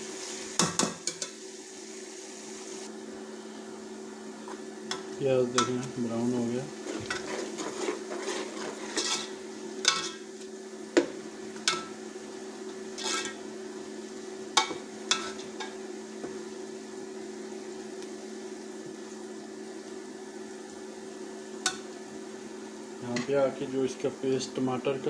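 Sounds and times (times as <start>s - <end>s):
onions sizzling in oil: 0.0s - 25.0s
metal ladle scraping a pot: 6.8s - 10.2s, 13.0s - 13.4s.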